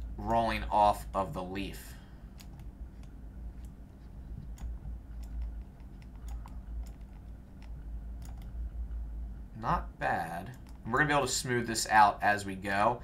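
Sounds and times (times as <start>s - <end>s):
low steady hum: 0.0s - 13.0s
mouse and keyboard clicks: 2.4s - 3.8s, 4.4s - 8.6s.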